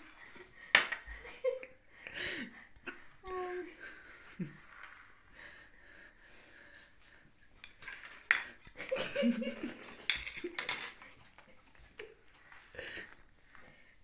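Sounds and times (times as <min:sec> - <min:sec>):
plate and cutlery clinking: 0:07.6 - 0:11.2.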